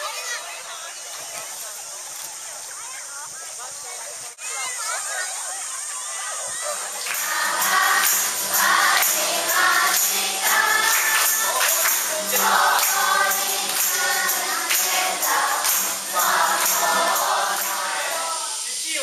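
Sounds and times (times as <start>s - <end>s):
hands clapping in rhythm: 7.0s - 18.3s
children and adults singing: 7.0s - 19.0s
acoustic guitar: 7.1s - 18.6s.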